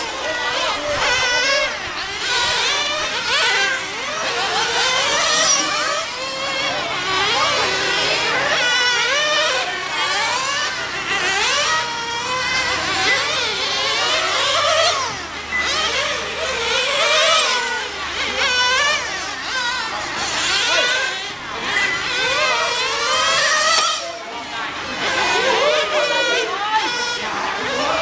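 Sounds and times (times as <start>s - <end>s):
rc car engines whining: 0.0s - 28.0s.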